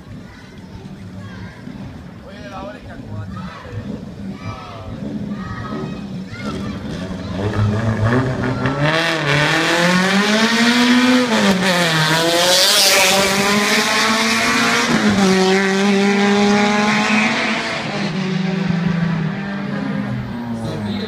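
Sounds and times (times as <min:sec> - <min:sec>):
race car accelerating and passing: 0:03.7 - 0:21.0.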